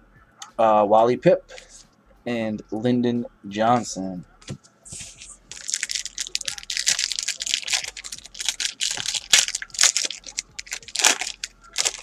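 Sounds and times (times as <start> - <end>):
wrapper tearing and crinkling: 5.5 - 12.0.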